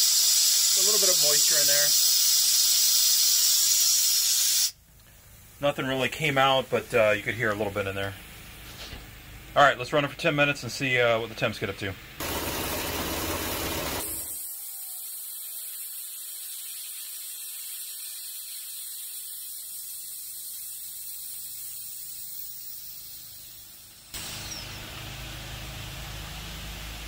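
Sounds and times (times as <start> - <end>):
compressed air hissing from drain valve: 0.0 - 7.2, 12.2 - 25.2.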